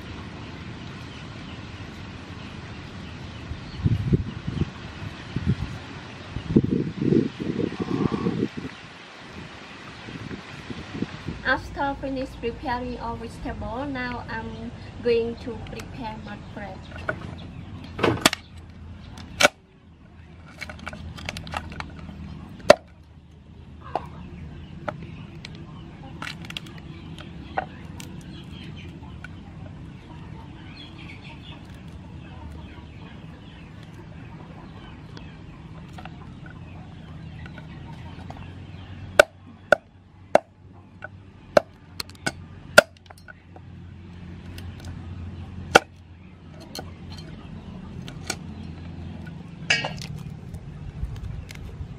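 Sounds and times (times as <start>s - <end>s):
crab shell cracking: 26.2s - 29.4s
cleaver chopping on wooden block: 39.2s - 40.5s, 45.7s - 46.0s.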